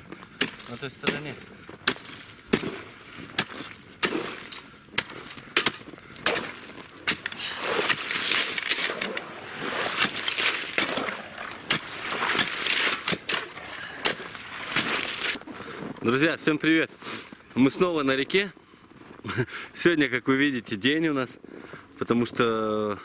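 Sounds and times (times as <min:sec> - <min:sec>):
ice chisel striking ice: 0:00.4 - 0:15.4
shovel scraping ice chunks: 0:00.4 - 0:15.4.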